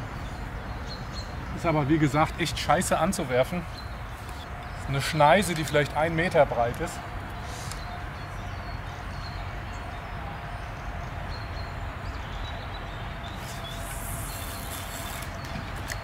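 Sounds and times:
rushing hiss: 0:13.4 - 0:15.3.

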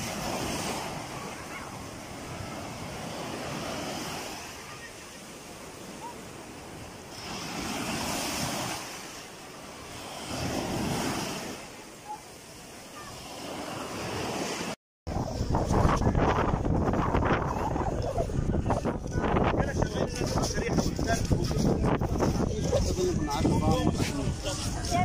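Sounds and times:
small waves breaking: 0:00.0 - 0:18.8.

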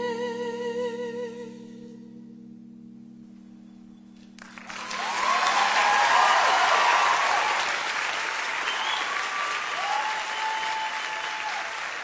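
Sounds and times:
audience applauding: 0:04.4 - 0:12.0
cheers: 0:04.6 - 0:12.0.

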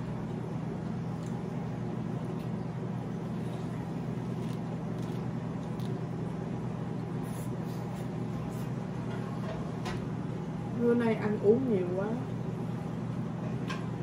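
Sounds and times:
crunching and chewing: 0:00.7 - 0:08.8.

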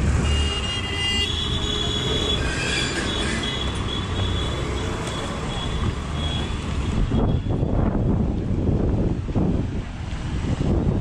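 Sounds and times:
street traffic: 0:00.0 - 0:11.0
wind buffeting microphone: 0:05.7 - 0:11.0.

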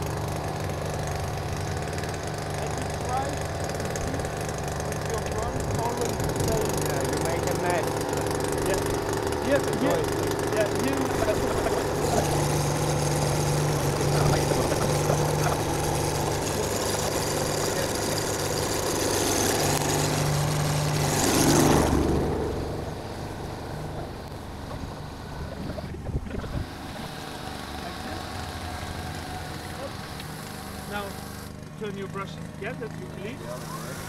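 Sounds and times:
loud rush: 0:00.0 - 0:24.6
motor humming: 0:00.0 - 0:34.0.

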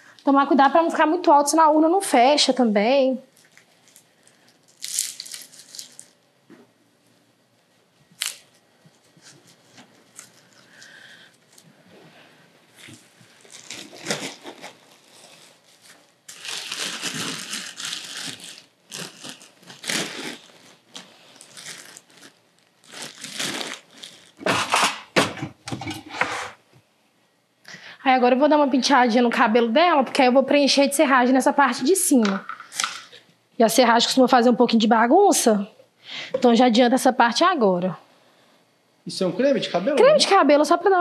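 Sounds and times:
crinkling and rustling materials: 0:03.3 - 0:06.7, 0:07.6 - 0:25.1.

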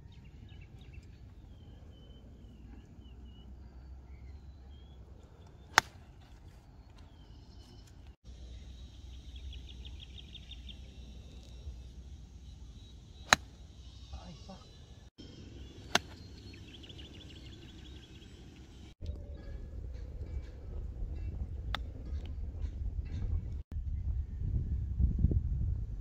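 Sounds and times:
golf clubs striking balls: 0:05.3 - 0:07.2, 0:13.2 - 0:13.6, 0:15.8 - 0:16.5.

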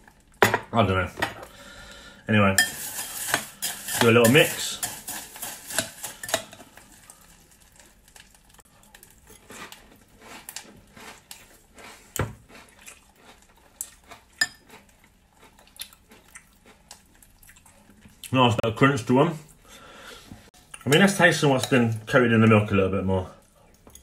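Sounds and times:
cereal crunching and chewing: 0:02.7 - 0:18.4.

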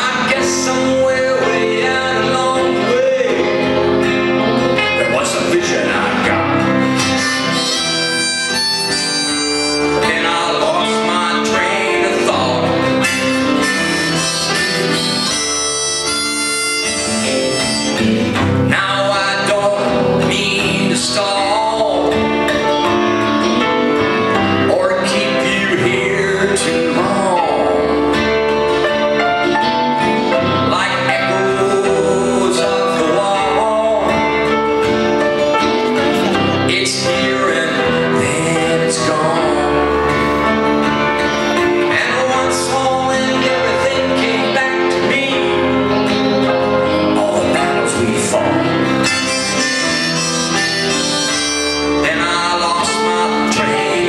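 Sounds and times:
live band music: 0:00.0 - 0:54.0.

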